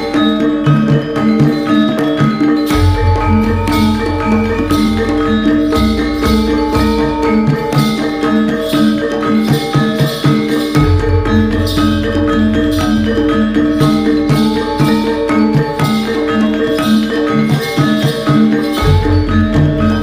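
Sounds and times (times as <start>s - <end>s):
background music with beat: 0.0s - 20.0s.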